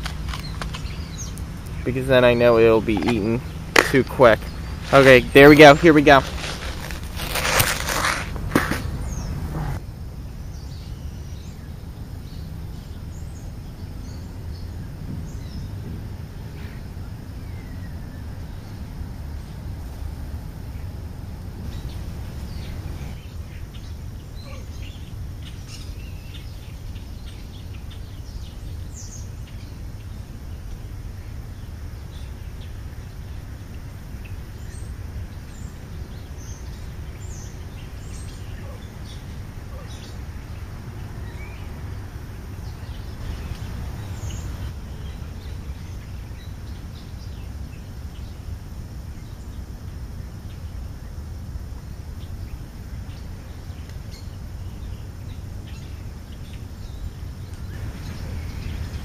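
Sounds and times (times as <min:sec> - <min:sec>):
starlings chirping and whistling: 0:00.0 - 0:09.8, 0:34.2 - 0:48.4
steady low rumble: 0:00.0 - 0:24.4.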